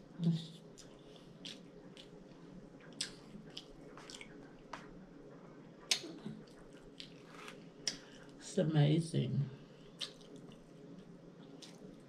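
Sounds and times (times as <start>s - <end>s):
chewing and wet mouth clicks: 0.7s - 2.2s, 2.8s - 4.8s, 5.8s - 8.4s, 9.9s - 12.0s.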